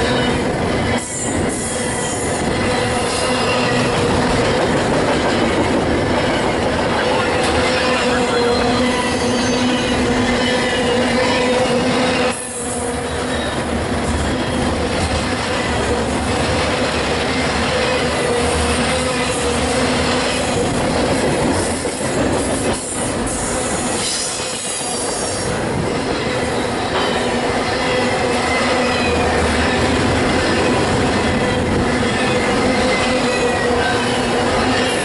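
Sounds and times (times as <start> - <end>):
freight train wheels rumbling: 0.0 - 35.0
wheel squeal: 8.2 - 10.0.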